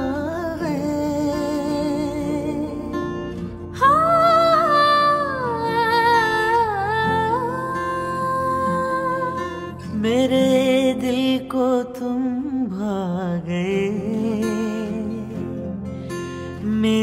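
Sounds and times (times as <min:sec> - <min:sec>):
person singing long notes: 0:00.0 - 0:15.2
acoustic guitar: 0:00.0 - 0:17.0.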